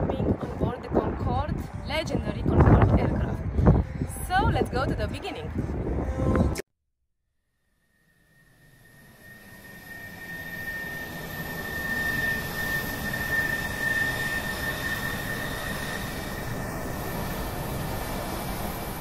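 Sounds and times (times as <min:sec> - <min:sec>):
jet engine roar and whine: 0:08.1 - 0:19.0.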